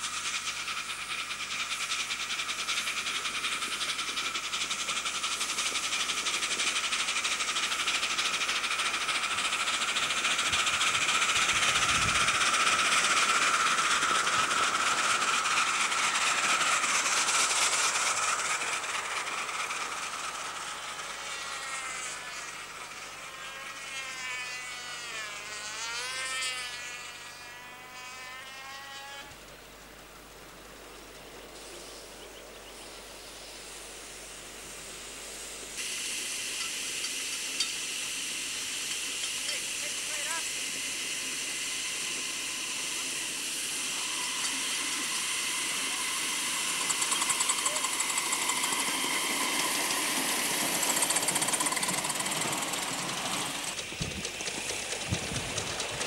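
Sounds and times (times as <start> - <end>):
steam locomotive exhaust beats: 0.0 - 23.9, 30.2 - 56.0
steam hissing: 0.0 - 24.4, 31.5 - 32.2, 32.8 - 56.0
wheels clicking on track: 0.0 - 31.4, 34.3 - 56.0.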